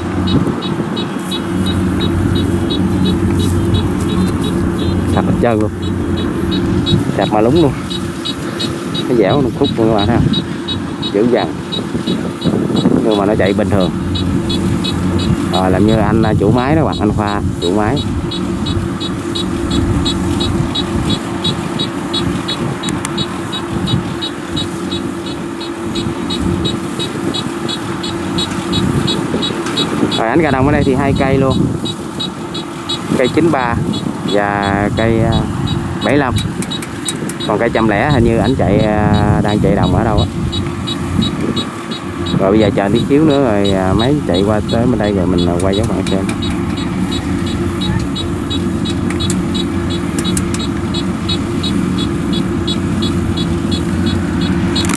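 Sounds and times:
combine harvester engine running: 0.0s - 54.9s
regular high ticks: 0.0s - 54.9s.

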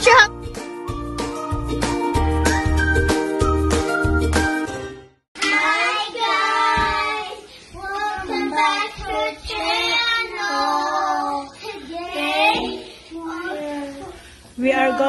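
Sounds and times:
children singing: 5.4s - 14.0s.

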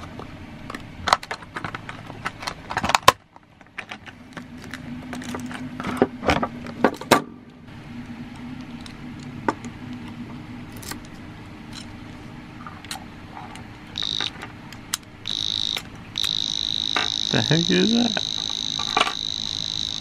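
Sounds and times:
padlock alarm beeping: 14.0s - 14.4s, 15.2s - 20.0s.

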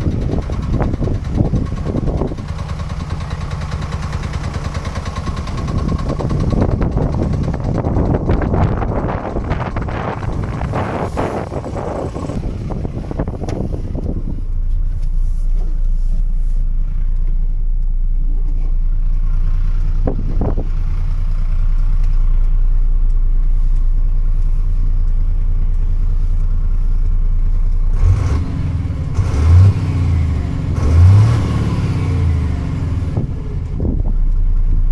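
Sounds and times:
wind buffeting microphone: 0.0s - 3.4s, 5.2s - 14.7s, 19.9s - 21.2s, 33.0s - 34.3s
diesel truck engine idling: 0.0s - 34.9s
engine revving: 0.0s - 34.9s.

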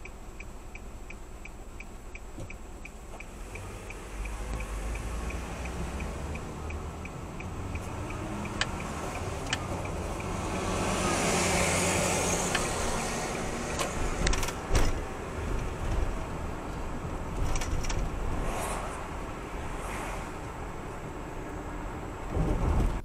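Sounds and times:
turn signal ticking: 0.0s - 18.2s
road noise: 0.0s - 23.0s.

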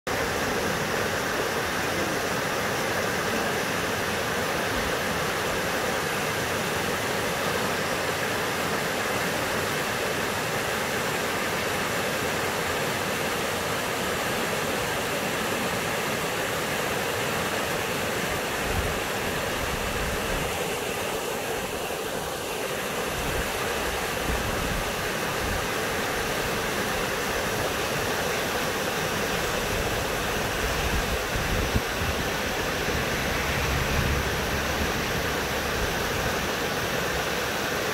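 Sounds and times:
river rushing over rocks: 0.1s - 37.9s.

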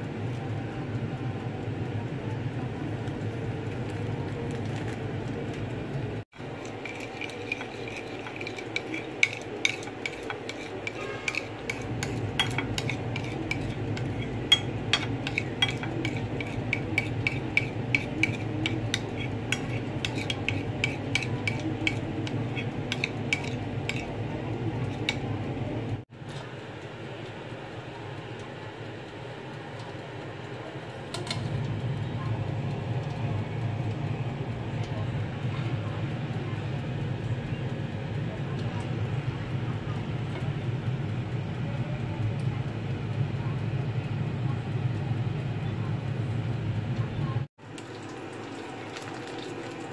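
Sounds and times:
spoon tapping and scraping a dish: 6.4s - 24.2s, 24.8s - 25.2s.

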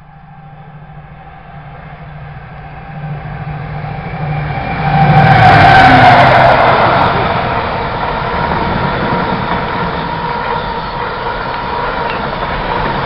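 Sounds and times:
diesel locomotive engine passing: 0.0s - 13.0s
rumble of freight wagons: 0.0s - 13.0s.

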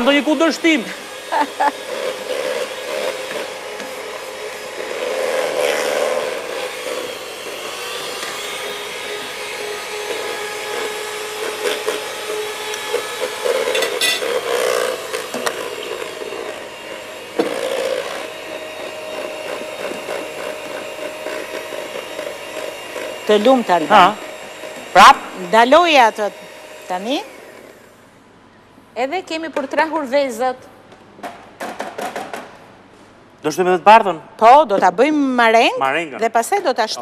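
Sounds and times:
electric hand mixer whirring: 0.0s - 28.0s.

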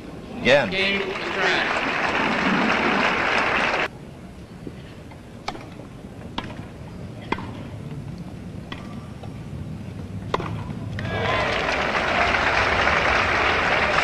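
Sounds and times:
low recording hum: 0.0s - 14.0s.

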